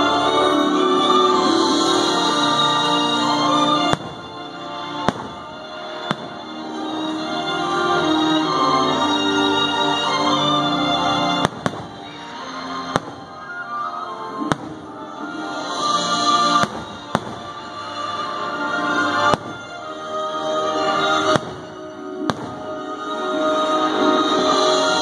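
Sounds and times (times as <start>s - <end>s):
background music: 0.0s - 25.0s
fireworks bangs: 3.7s - 6.9s, 11.3s - 18.2s, 19.1s - 20.0s, 21.0s - 23.1s.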